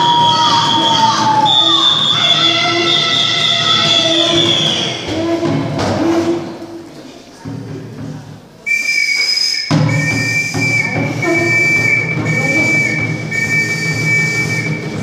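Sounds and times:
shrill whistle blasts: 0.0s - 5.5s, 8.6s - 15.0s
drums for dancing: 0.0s - 6.2s, 9.6s - 15.0s.

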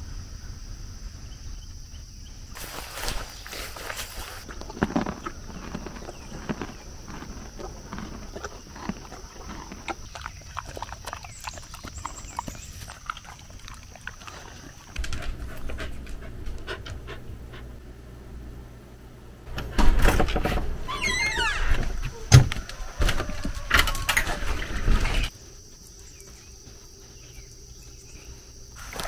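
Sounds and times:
dog panting: 9.4s - 17.8s.

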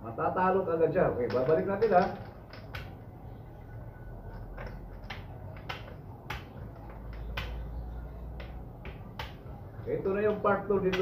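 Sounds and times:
game pieces clicking on plastic board: 1.2s - 2.9s.

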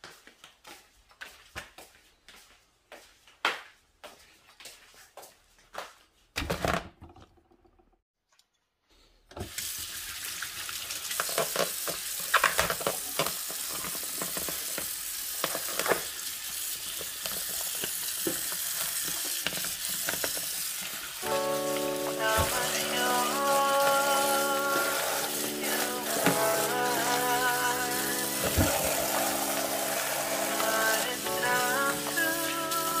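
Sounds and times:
water splashing on foam tray: 14.0s - 33.0s.

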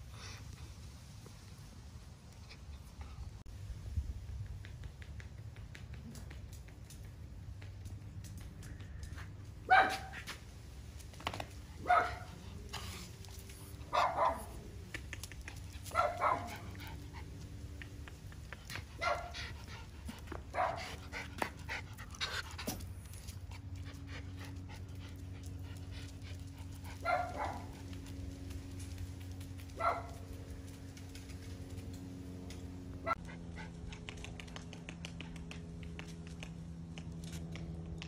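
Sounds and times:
dogs barking sharply: 9.7s - 10.4s, 11.8s - 12.4s, 13.9s - 14.6s, 15.8s - 16.8s, 19.0s - 19.5s, 20.5s - 21.0s, 27.0s - 27.8s, 29.8s - 30.3s.

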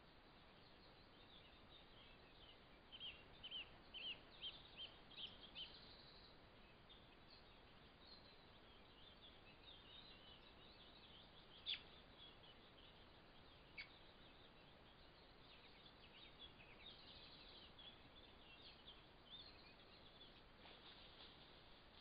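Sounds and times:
birdsong chirps and twitters: 0.0s - 22.0s
steady hiss: 12.0s - 22.0s.

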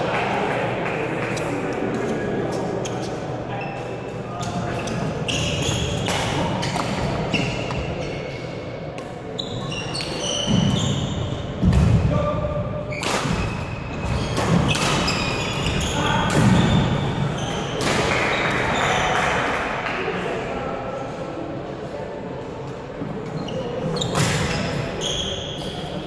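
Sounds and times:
shoes squeaking on wooden floor: 4.6s - 8.3s, 9.4s - 11.4s.

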